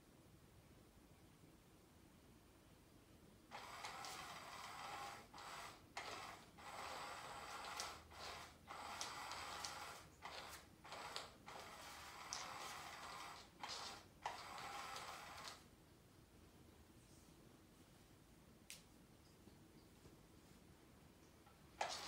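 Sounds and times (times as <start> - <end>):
small motor whirring: 3.5 - 15.6, 21.8 - 22.0.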